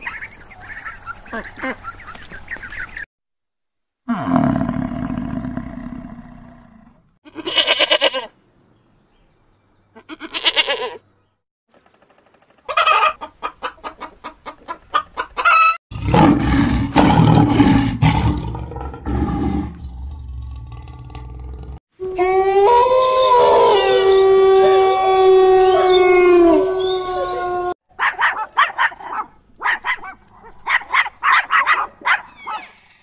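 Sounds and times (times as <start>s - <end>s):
chickens clucking: 0.0s - 3.0s, 12.4s - 15.8s
loud animal call: 22.0s - 27.8s.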